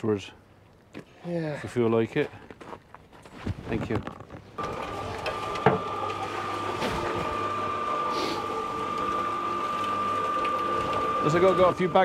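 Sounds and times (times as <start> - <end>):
cement mixer motor whine: 4.6 - 12.0.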